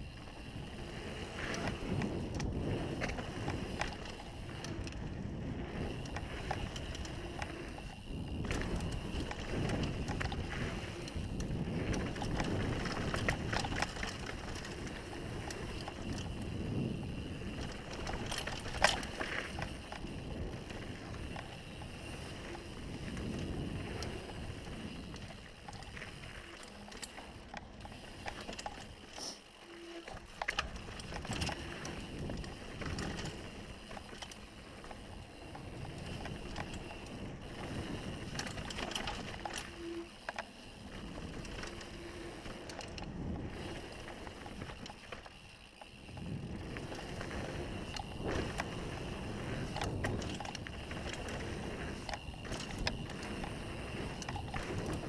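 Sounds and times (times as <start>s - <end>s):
wind on microphone: 0.0s - 26.6s, 46.0s - 55.0s
bike rattling on bumps: 0.0s - 55.0s
bike tyres on dirt: 0.0s - 55.0s.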